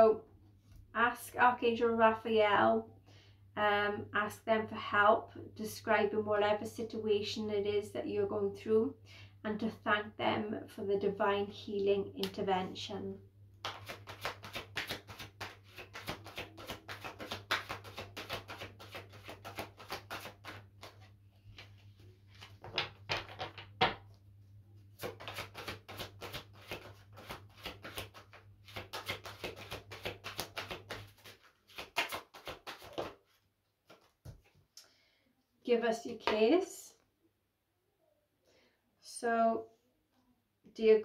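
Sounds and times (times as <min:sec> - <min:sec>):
cards being shuffled: 0:13.6 - 0:24.1, 0:25.0 - 0:34.6.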